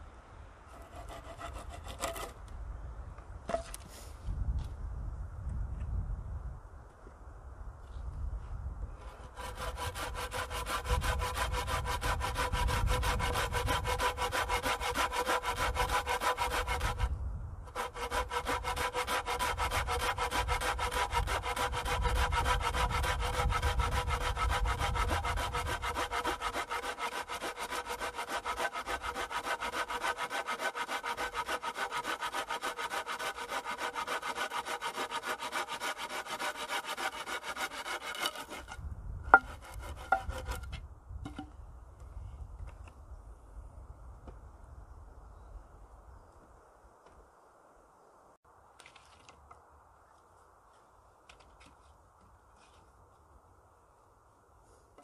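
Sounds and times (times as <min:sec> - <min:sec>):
hand saw cutting wood: 0:00.7 - 0:02.3, 0:09.0 - 0:17.1, 0:17.7 - 0:38.8, 0:39.4 - 0:40.8.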